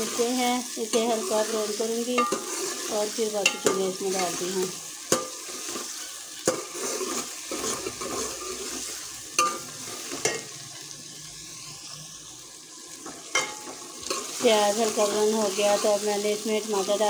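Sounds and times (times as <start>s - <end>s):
onions sizzling in oil: 0.0s - 17.0s
metal ladle scraping a pot: 2.2s - 4.4s, 5.2s - 10.5s.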